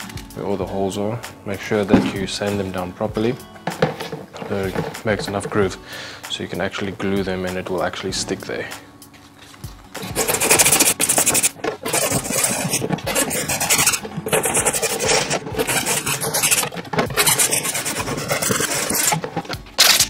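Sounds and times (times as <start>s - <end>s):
sanding plastic lid: 3.7s - 5.6s, 10.0s - 20.0s.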